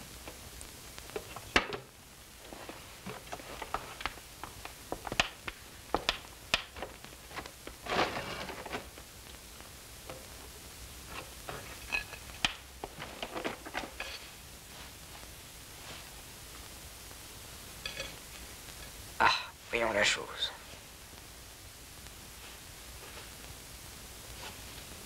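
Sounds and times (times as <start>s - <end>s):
scraping rustle: 7.2s - 9.0s, 11.1s - 16.2s.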